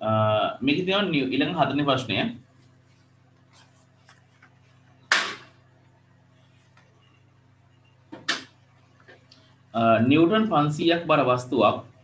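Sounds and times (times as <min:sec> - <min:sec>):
faint low hum: 0:00.0 - 0:12.0
paper rustling: 0:02.6 - 0:04.9.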